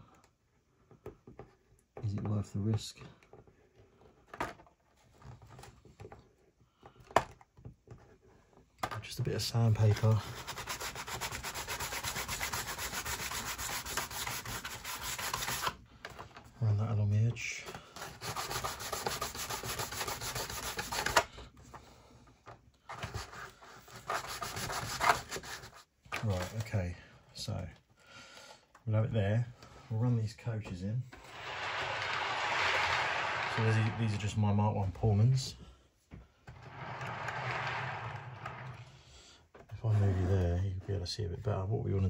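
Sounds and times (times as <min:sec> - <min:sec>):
sandpaper rubbing back and forth: 0:09.9 - 0:15.8, 0:18.0 - 0:21.2, 0:23.8 - 0:25.8.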